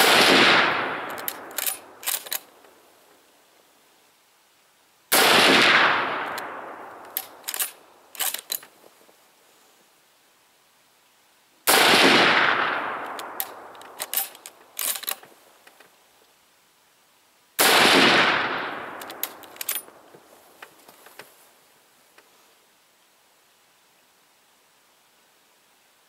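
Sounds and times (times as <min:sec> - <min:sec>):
rifle shots with echo: 0:00.0 - 0:02.4, 0:05.1 - 0:08.5, 0:11.7 - 0:15.1, 0:17.6 - 0:19.9
rifle bolt clicks: 0:01.0 - 0:02.5, 0:06.2 - 0:08.7, 0:13.0 - 0:15.2, 0:18.9 - 0:20.0.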